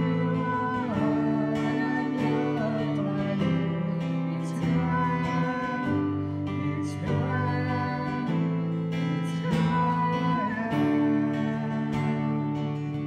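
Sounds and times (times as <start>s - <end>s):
acoustic guitar strummed: 0.0s - 13.0s
voices singing: 0.0s - 13.0s.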